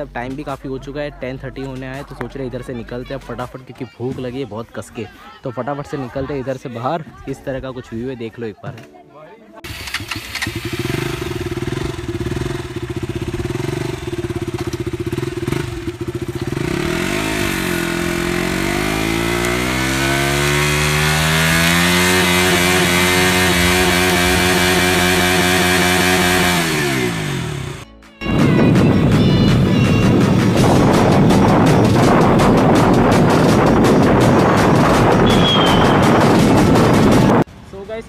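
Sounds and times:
motorcycle engine idling and revving: 9.6 - 37.5.

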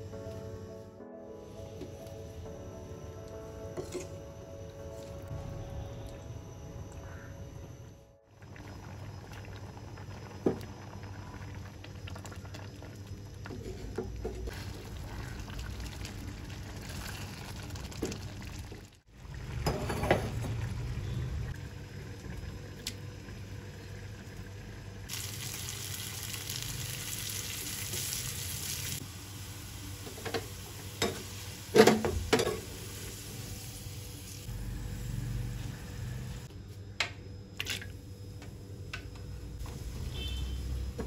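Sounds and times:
onions sizzling in oil: 25.1 - 36.5.

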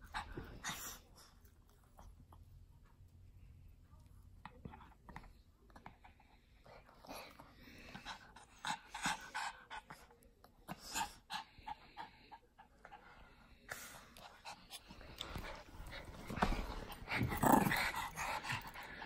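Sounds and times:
small dog panting: 5.8 - 19.0.

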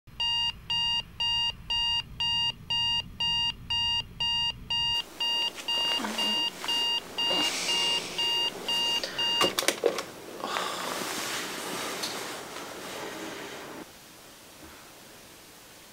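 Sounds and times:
alarm clock beeping: 0.2 - 9.6
bedclothes rustling: 5.0 - 13.9
alarm switch clicks: 8.1 - 9.6.

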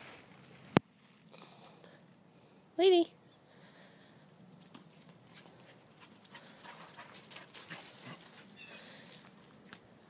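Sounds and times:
dog paws on grass and leaves: 4.5 - 10.0.

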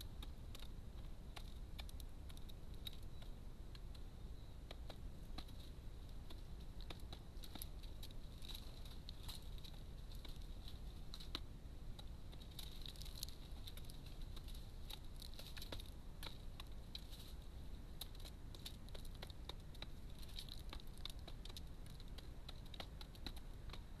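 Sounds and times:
pigeons pecking seed: 0.0 - 24.0.

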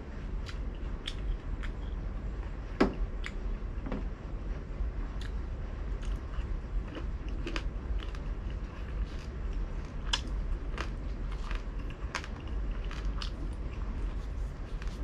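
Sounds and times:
chewing crispy food: 5.2 - 15.0.

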